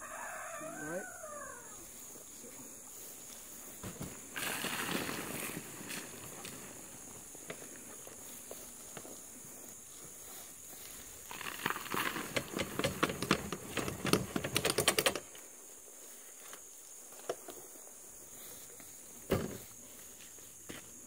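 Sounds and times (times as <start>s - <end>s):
wheelbarrow clattering and rattling: 11.3s - 15.3s
wheelbarrow set down thump: 19.3s - 19.7s.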